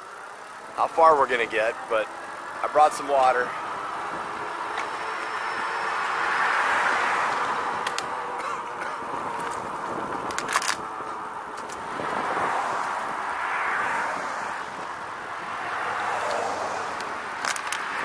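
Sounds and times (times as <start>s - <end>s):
cars passing: 0.0s - 18.0s
rattle of sharp clicks: 17.0s - 18.0s.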